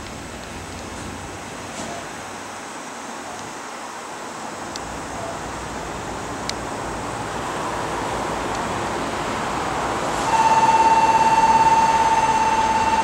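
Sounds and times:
electric train rumble: 4.4s - 13.0s
electronic alert tone: 10.3s - 13.0s.

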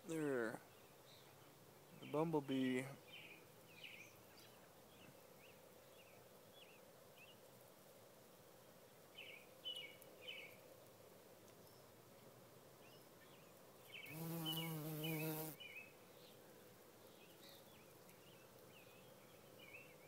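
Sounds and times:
bumblebee buzzing: 14.0s - 15.6s.

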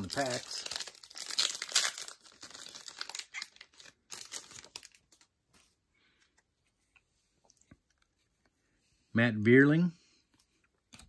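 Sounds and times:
wrapper crinkling: 0.0s - 5.3s.

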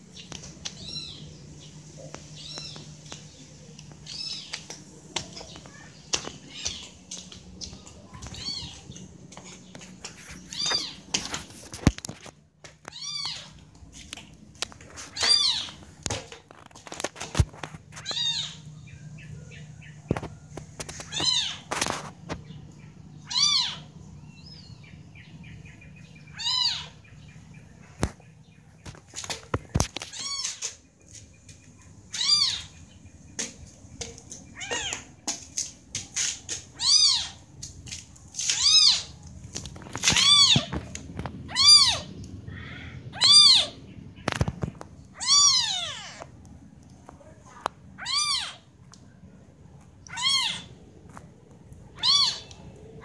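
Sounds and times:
kittens mewing: 20.9s - 22.0s, 23.2s - 23.9s, 26.3s - 27.0s, 32.1s - 32.7s, 34.6s - 35.1s, 36.7s - 37.4s, 40.0s - 40.9s, 41.5s - 43.8s, 45.2s - 46.3s, 48.0s - 48.7s, 50.0s - 50.8s, 51.9s - 53.0s.

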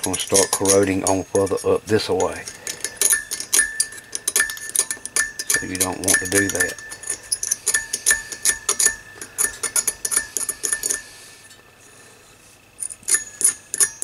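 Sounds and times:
knife scraping metal pins: 0.0s - 11.2s.

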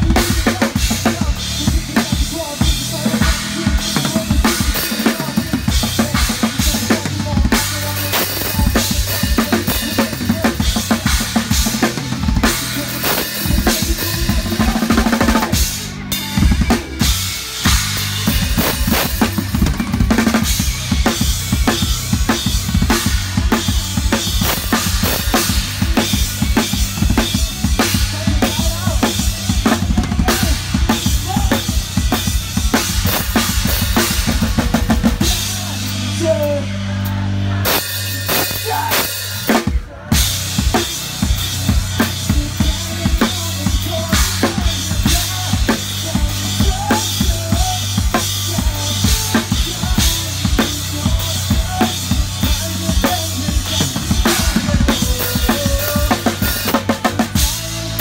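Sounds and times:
rock band playing: 0.0s - 58.0s
rock drum kit playing: 0.0s - 58.0s.

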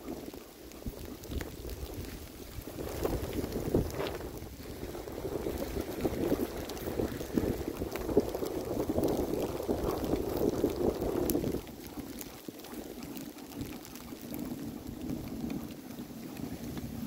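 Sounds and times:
sled runners scraping on snow: 0.0s - 17.0s.

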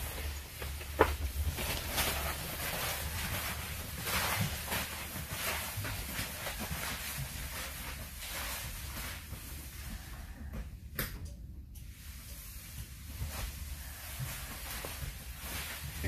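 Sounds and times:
footsteps on bus aisle: 0.0s - 10.4s.

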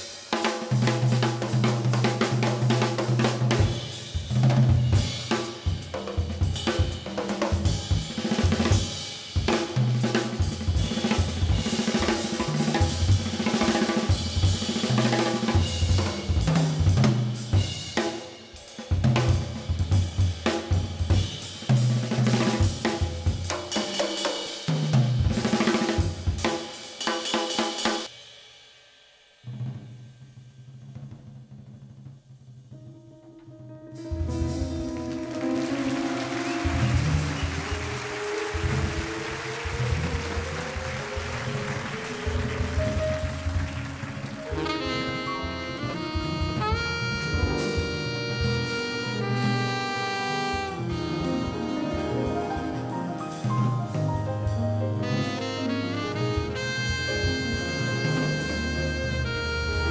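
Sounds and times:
jazz drum kit solo: 0.0s - 28.6s, 29.2s - 59.9s
soft instrument playing: 33.1s - 59.9s.

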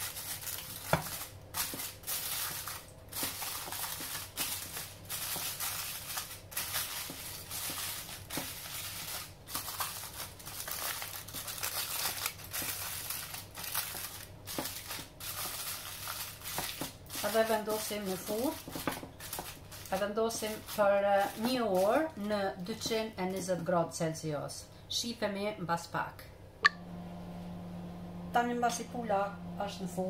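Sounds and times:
aluminium foil crinkling: 0.0s - 23.7s.

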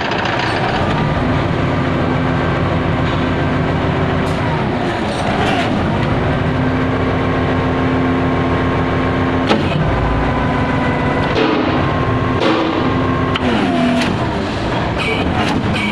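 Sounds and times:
concrete pump whine and drone: 0.0s - 15.9s
sharp knock: 11.3s - 13.0s.

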